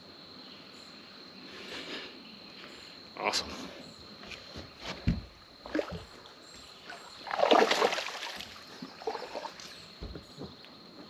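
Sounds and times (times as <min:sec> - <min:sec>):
dull thumps: 0:04.3 - 0:06.2, 0:09.9 - 0:11.0
fish splashing into water: 0:06.9 - 0:09.6.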